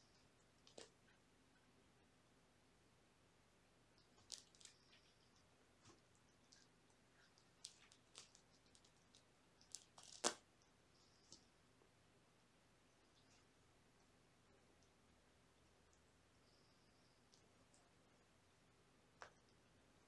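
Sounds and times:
claws scratching and scuffling: 4.0 - 10.4.

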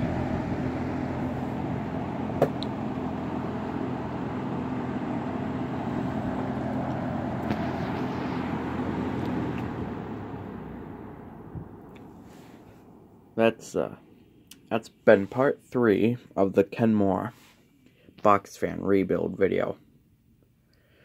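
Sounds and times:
fan blades spinning down: 0.0 - 16.1
box fan running: 0.0 - 16.5.

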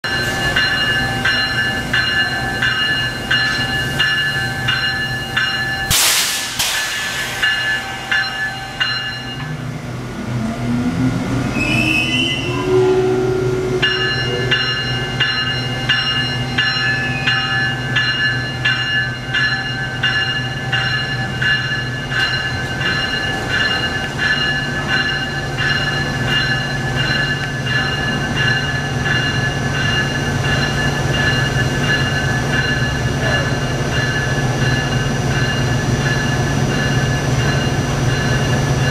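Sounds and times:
locomotive bell ringing: 0.0 - 9.8, 12.3 - 38.9
loud air hiss: 5.9 - 8.0.

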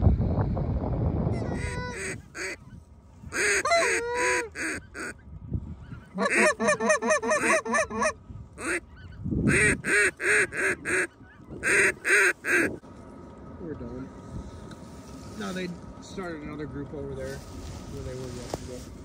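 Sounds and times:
goose honking: 1.4 - 5.2, 5.8 - 12.8.

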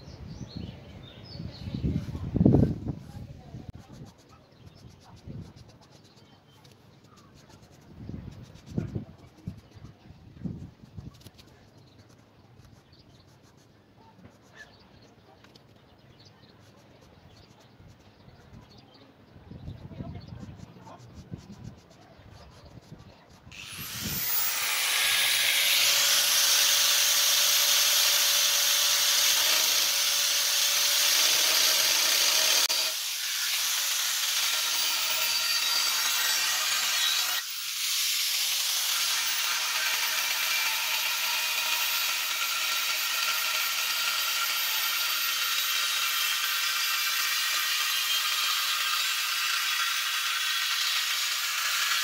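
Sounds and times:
angle grinder cutting steel: 23.5 - 52.0.

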